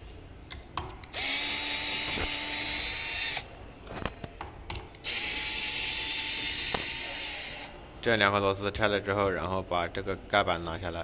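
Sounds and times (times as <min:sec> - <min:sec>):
cordless drill motor whining: 0:01.1 - 0:03.5, 0:05.0 - 0:07.7.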